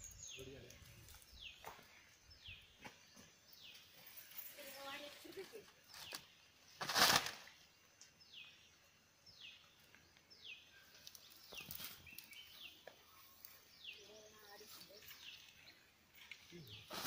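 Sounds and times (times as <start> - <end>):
soft rustles of leaves: 0.0 - 8.6, 9.4 - 17.0
dry leaves rustling: 4.0 - 6.2, 6.8 - 7.5, 11.0 - 13.6.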